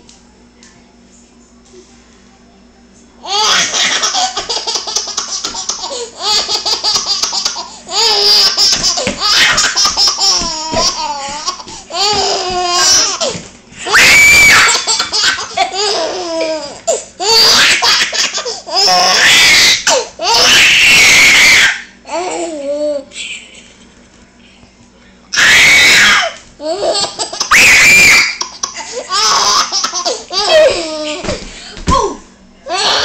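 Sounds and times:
baby screaming: 3.3 - 4.2, 7.9 - 11.3, 12.0 - 15.0, 17.2 - 22.0, 25.4 - 26.4, 27.4 - 28.5, 32.0 - 33.0
baby laughing: 3.3 - 13.3, 14.5 - 20.4, 26.6 - 27.5, 28.3 - 31.4.

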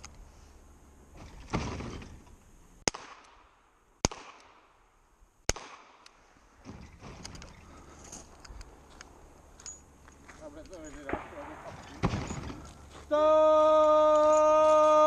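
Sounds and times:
dull bang: 11.1 - 12.6.

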